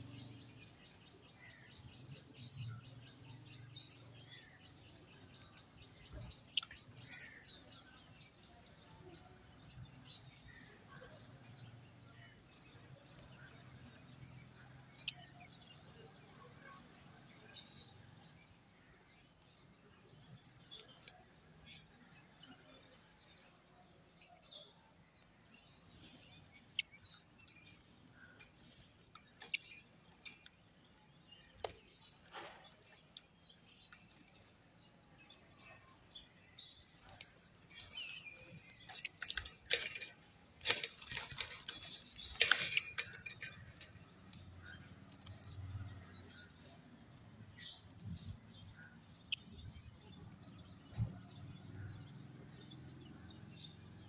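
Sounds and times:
lovebird chirping: 0.0s - 11.6s.

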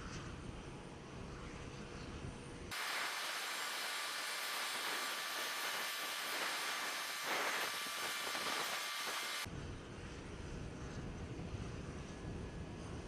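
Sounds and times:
hissing turbine whine: 2.7s - 10.2s.

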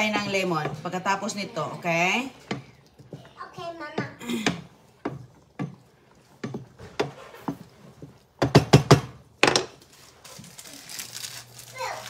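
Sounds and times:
wooden spoon knocking metal pan: 2.0s - 9.8s.

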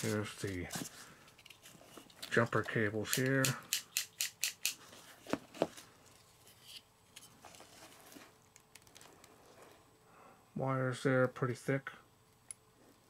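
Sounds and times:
faint rustling handling noise: 0.0s - 3.4s, 4.8s - 10.0s.

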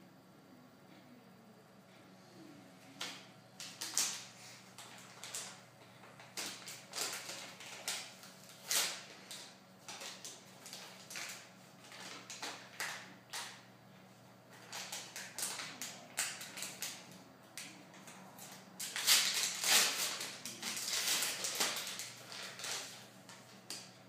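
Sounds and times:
paper packet crinkling: 3.6s - 13.7s, 14.5s - 17.8s, 18.4s - 23.9s.

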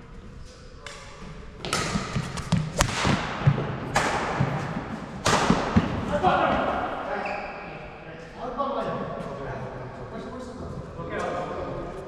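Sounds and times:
racket striking shuttlecock: 1.6s - 6.1s.

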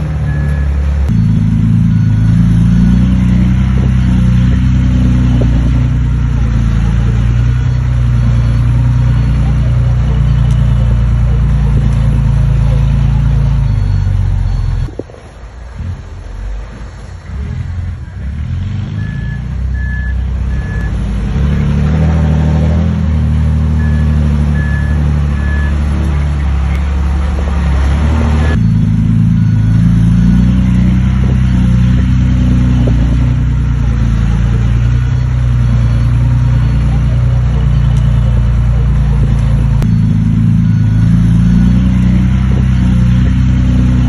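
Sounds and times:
diesel machinery engine running: 0.0s - 44.0s
reversing alarm beeps: 0.2s - 11.0s, 11.6s - 15.0s, 18.0s - 21.1s, 23.7s - 26.8s, 28.1s - 38.4s, 39.6s - 44.0s.

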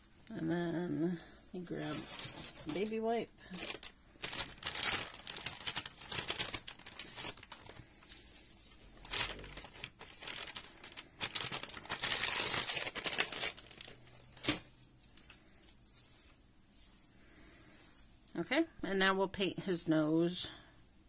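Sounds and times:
plastic wipe pack crinkling: 1.7s - 17.0s.

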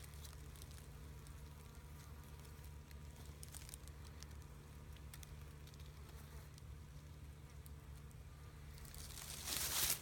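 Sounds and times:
dry leaves rustling: 0.0s - 6.2s, 8.8s - 10.0s
steady low hum: 0.0s - 10.0s.

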